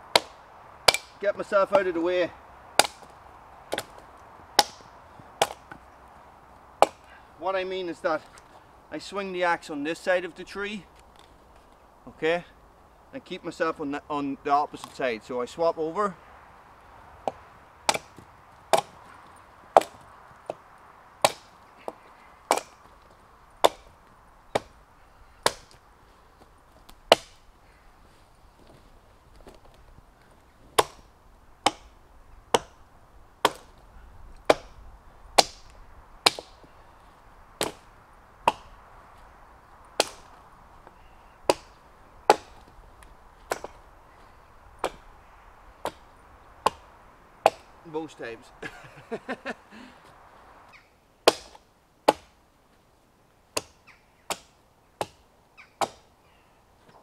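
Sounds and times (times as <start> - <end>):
axe chopping wood: 0.0 - 1.2, 2.8 - 4.0, 4.6 - 5.8, 6.8 - 7.1, 17.2 - 20.6, 21.2 - 23.0, 23.6 - 24.8, 25.4 - 25.8, 26.8 - 27.5, 30.7 - 32.8, 33.4 - 33.8, 34.4 - 36.7, 37.6 - 38.8, 40.0 - 42.8, 43.4 - 43.9, 44.8 - 45.1, 45.8 - 47.8, 51.2 - 52.4, 53.6 - 56.1.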